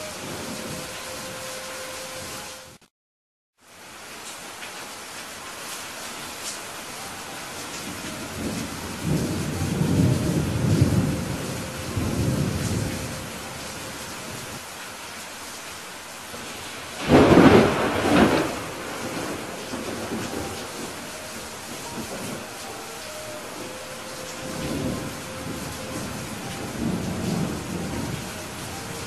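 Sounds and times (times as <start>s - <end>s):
heavy rain: 0.0s - 2.8s, 3.6s - 29.0s
rolling thunder rumble: 7.8s - 14.6s, 16.3s - 29.0s
sharp thunderclap: 17.0s - 21.0s.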